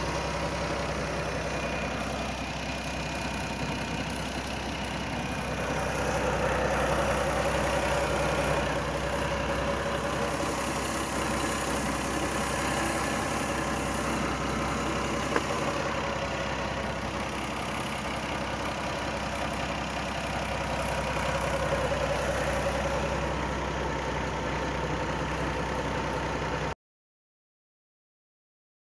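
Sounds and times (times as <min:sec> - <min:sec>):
car engine idling: 0:00.0 - 0:26.8.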